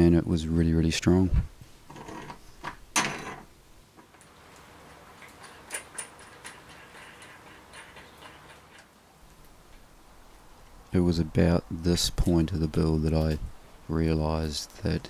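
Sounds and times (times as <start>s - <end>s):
nut and bolt clicking on metal: 4.0s - 8.9s.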